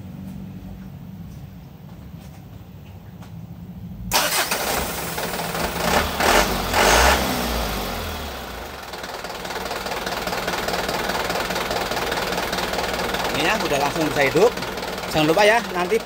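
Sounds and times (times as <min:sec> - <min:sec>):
diesel engine starting and revving: 0:03.8 - 0:16.0.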